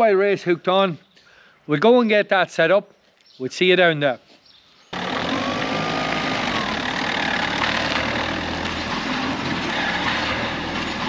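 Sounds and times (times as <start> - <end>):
road noise: 5.0 - 11.0
van engine running: 5.0 - 11.0.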